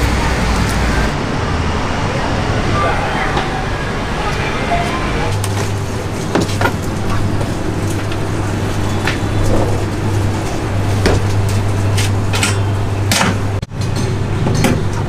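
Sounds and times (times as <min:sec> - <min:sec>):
kitchen machinery humming: 0:03.7 - 0:15.0.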